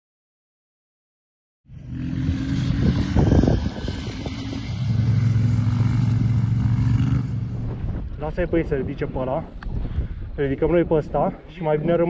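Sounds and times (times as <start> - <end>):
motorcycle engines droning: 1.7 - 9.1.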